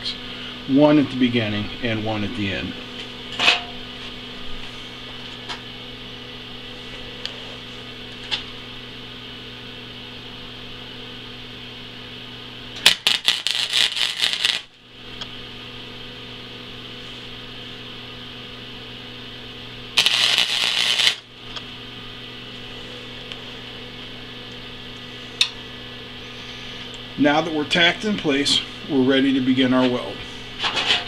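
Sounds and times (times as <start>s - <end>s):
steady electrical hum: 0.0s - 31.0s
welding arc crackling: 12.8s - 14.8s, 19.9s - 21.6s.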